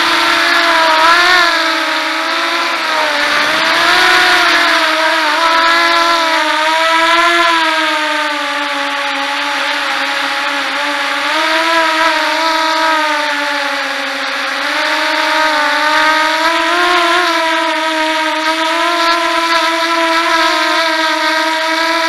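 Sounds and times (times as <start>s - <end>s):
drone motors whining: 0.0s - 22.0s
rushing air hiss: 2.2s - 5.9s.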